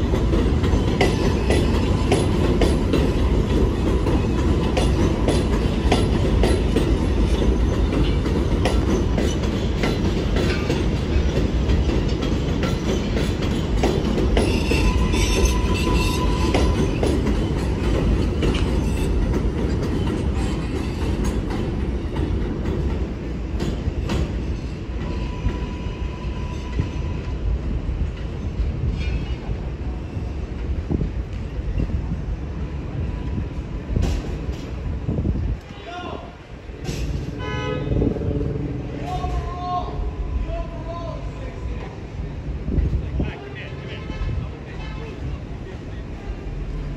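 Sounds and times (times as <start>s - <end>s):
train wheels clacking on rails: 0.0s - 32.1s, 33.3s - 35.7s, 36.6s - 39.8s
high wheel squeals: 14.4s - 17.8s.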